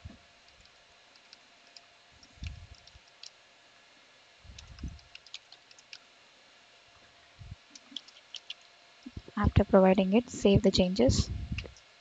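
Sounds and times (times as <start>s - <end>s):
keyboard keys clicking: 0.6s - 3.3s, 4.6s - 6.0s, 7.8s - 8.6s.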